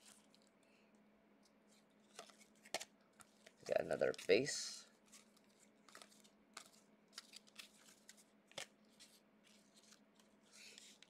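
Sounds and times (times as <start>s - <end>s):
trading cards flipped by hand: 1.7s - 4.4s, 5.0s - 11.0s.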